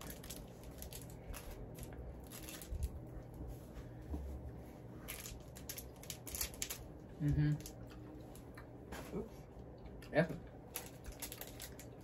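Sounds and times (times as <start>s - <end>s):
plastic candy wrappers crinkling: 0.0s - 3.0s, 5.0s - 8.0s, 10.6s - 12.0s.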